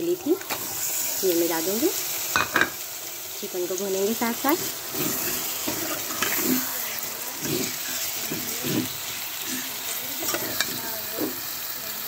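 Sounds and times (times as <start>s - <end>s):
chicken sizzling in hot oil: 0.0s - 12.0s
metal spoon scraping pot: 4.4s - 6.7s, 7.4s - 11.4s.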